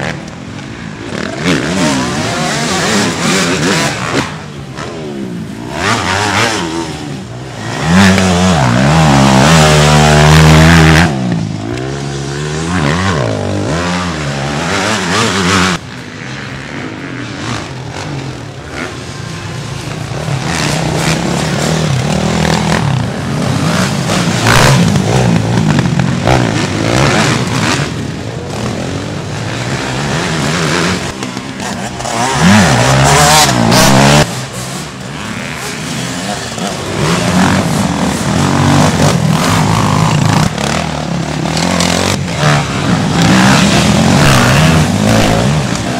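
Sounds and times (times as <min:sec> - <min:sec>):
motocross bike engines revving: 0:00.0 - 0:45.9.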